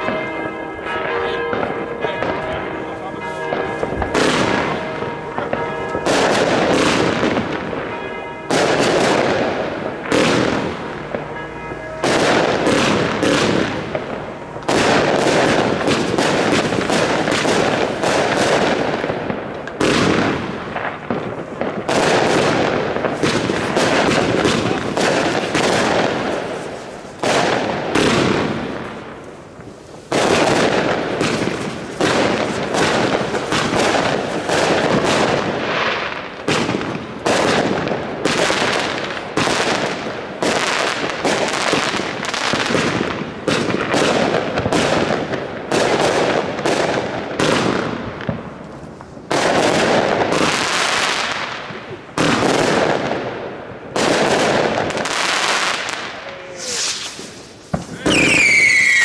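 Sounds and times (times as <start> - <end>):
fireworks banging: 0.0 - 59.0.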